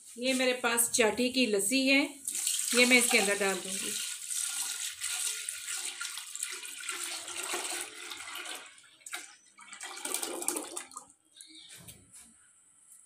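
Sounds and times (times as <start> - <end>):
liquid pouring into metal pot: 2.3 - 11.1.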